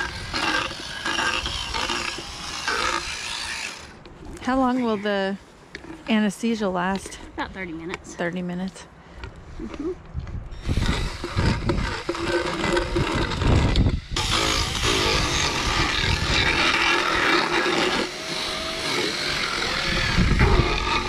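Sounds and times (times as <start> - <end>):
dental float grinding teeth: 0.0 - 4.0, 10.6 - 21.0
motor whine: 10.5 - 21.0.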